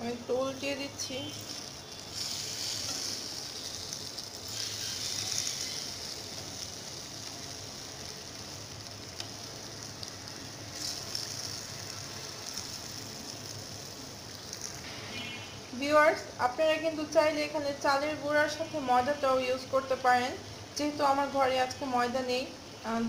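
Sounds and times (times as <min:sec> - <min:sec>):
hot oil sizzling in a frying pan: 0:00.0 - 0:23.0.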